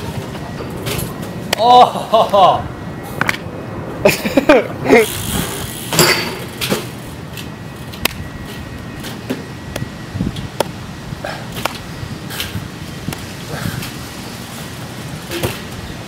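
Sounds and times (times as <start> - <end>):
bike tyres clicking and tapping: 11.5 - 16.0.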